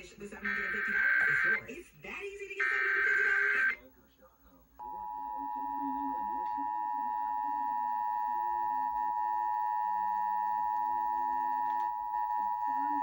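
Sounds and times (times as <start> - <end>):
two-tone alert signal: 0.5 - 1.6, 4.8 - 13.0.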